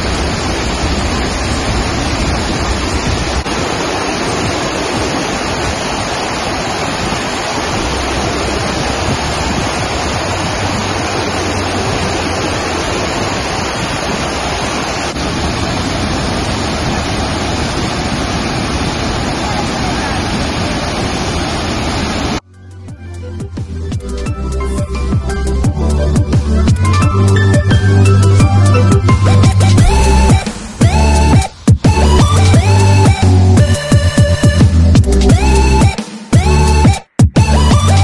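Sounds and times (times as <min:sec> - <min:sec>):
waterfall rushing: 0:00.0 - 0:22.4.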